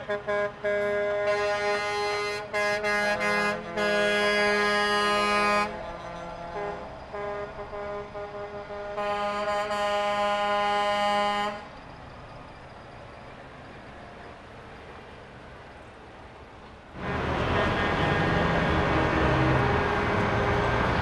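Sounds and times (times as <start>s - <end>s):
truck air horn blast: 0.0s - 11.7s, 17.0s - 20.6s
street and engine noise: 0.0s - 21.0s.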